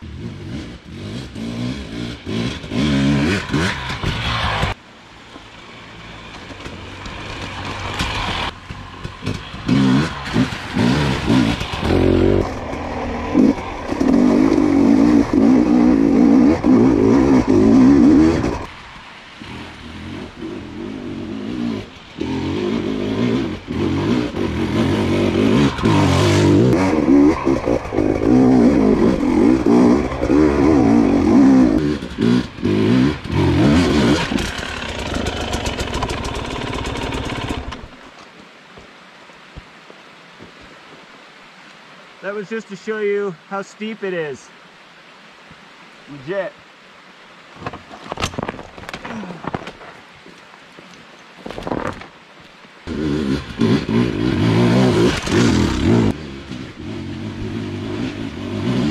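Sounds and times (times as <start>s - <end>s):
dirt bike engine revving: 0.0s - 4.8s, 7.5s - 18.7s, 19.4s - 37.9s, 52.9s - 58.9s.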